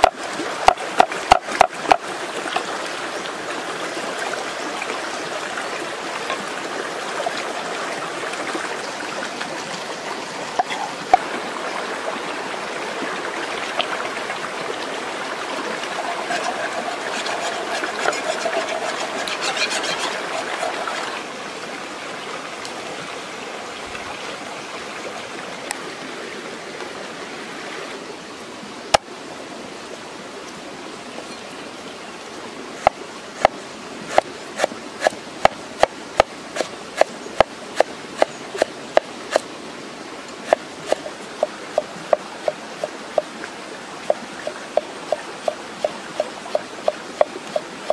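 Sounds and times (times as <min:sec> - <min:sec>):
stream running over rocks: 0:00.0 - 0:47.9
water sloshing and splashing: 0:06.0 - 0:21.4, 0:40.4 - 0:47.9
knife strokes on wooden board: 0:16.2 - 0:20.8, 0:40.5 - 0:41.1.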